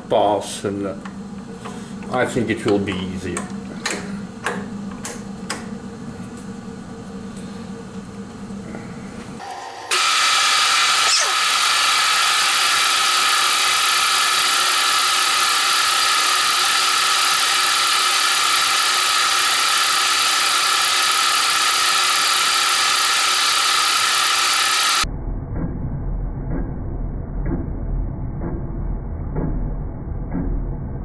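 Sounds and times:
milling machine whine: 0:09.4 - 0:25.0.

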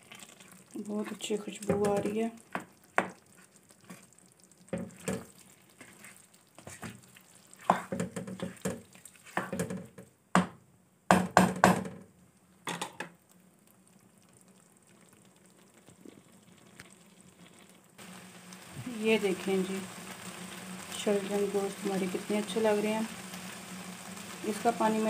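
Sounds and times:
spatula scraping a pan: 0:04.8 - 0:09.8.

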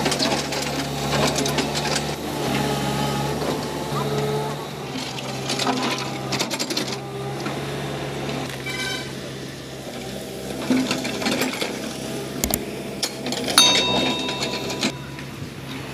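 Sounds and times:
diesel engine running: 0:00.0 - 0:15.9
short electronic chime: 0:13.6 - 0:15.4.

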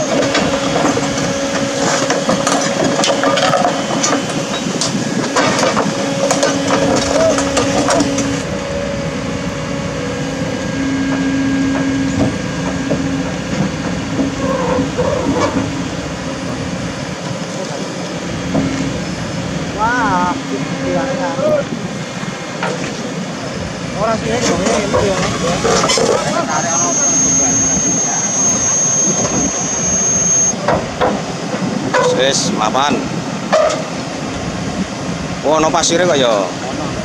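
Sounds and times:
metal creaking and clanking: 0:00.0 - 0:08.5, 0:24.2 - 0:32.4
excavator engine whining under load: 0:00.0 - 0:37.0.

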